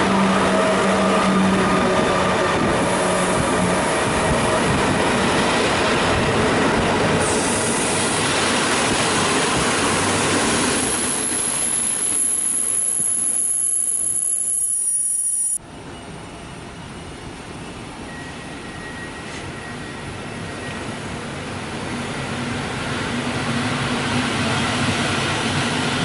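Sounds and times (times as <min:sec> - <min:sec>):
train wheels rumbling on rail: 0:00.0 - 0:14.3, 0:15.6 - 0:26.0
high-pitched wheel squeal: 0:10.8 - 0:15.6.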